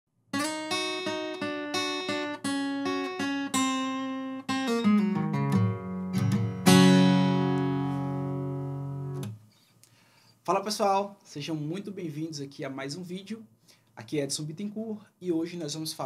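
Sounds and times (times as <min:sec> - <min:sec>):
acoustic guitar plucked notes: 0:00.3 - 0:09.4
guitar chord ringing: 0:00.4 - 0:09.4.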